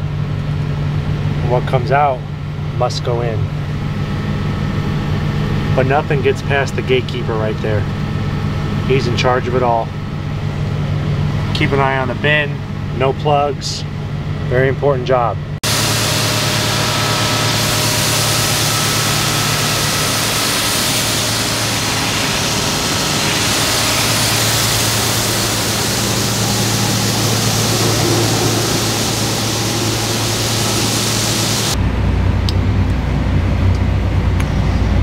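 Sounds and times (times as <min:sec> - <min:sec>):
machine engine drone: 0:00.0 - 0:14.8, 0:15.4 - 0:35.0
auger drive humming: 0:15.6 - 0:31.8
grain kernels pouring hiss: 0:15.7 - 0:31.8.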